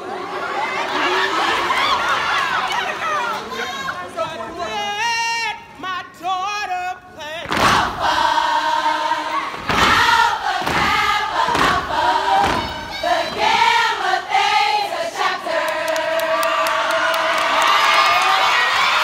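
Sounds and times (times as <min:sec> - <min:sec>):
women singing in unison: 0:06.0 - 0:17.8.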